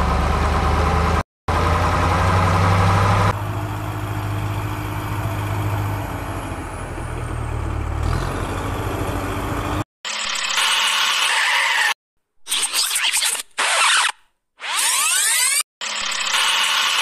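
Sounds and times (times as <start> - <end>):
engine idling: 0.0 - 9.8
high engine whine: 0.0 - 9.8.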